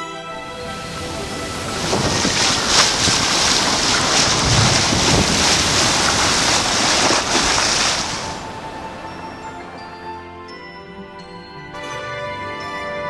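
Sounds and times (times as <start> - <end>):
water rushing along a hull: 0.3 - 10.5
wind buffeting microphone: 0.4 - 10.0.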